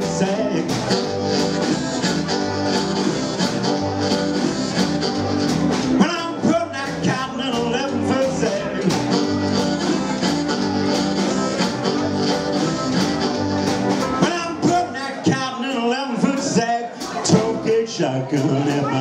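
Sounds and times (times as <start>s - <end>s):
amplified blues harmonica: 0.0s - 15.0s
blues band playing: 0.0s - 19.0s.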